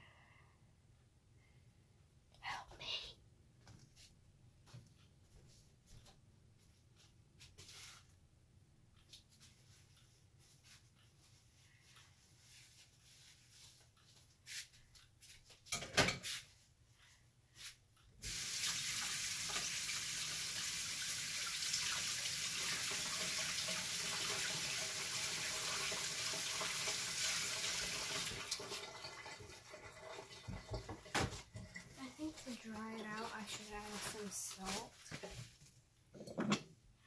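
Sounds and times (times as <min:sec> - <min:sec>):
water running into sink: 0:18.2 - 0:31.9.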